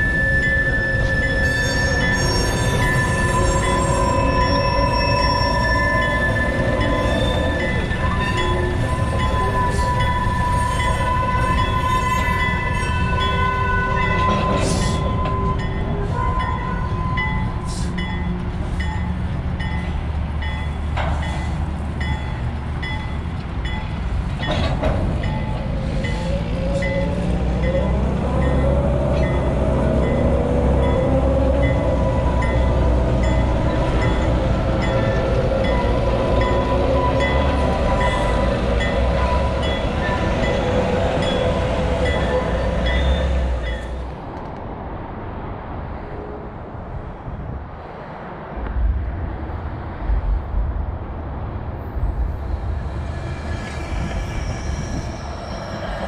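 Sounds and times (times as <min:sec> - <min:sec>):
high squeal: 0:00.0 - 0:18.3, 0:52.4 - 0:56.0
metallic clanks from rail cars: 0:00.0 - 0:44.6
diesel locomotive engine rumbling: 0:00.0 - 0:56.0.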